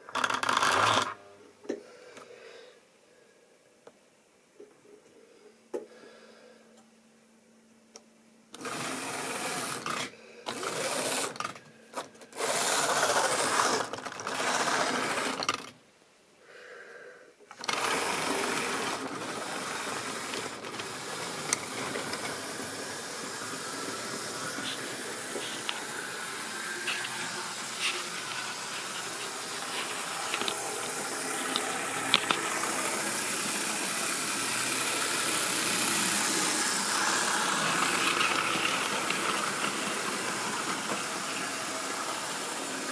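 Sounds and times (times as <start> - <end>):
model train motor whirr: 0.1 - 1.2, 8.6 - 11.6, 12.3 - 15.7, 17.5 - 42.9.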